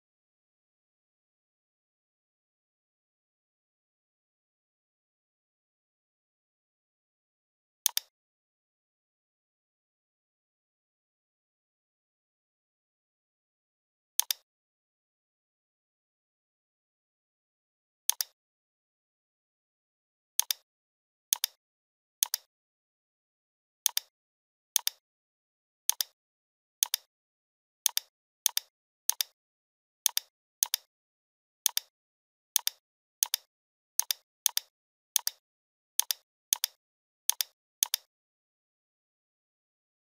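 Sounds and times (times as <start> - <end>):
computer mouse clicks: 7.8 - 8.1, 14.2 - 14.4, 18.1 - 18.4, 20.4 - 20.6, 21.3 - 21.6, 22.2 - 22.5, 23.8 - 24.1, 24.8 - 25.0, 25.9 - 26.2, 26.8 - 27.1, 27.8 - 29.4, 30.0 - 30.9, 31.6 - 31.9, 32.6 - 35.4, 36.0 - 38.1.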